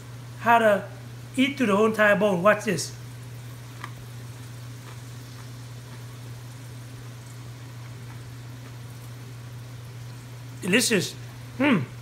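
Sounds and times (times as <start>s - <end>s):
crunchy chewing: 3.5s - 9.3s.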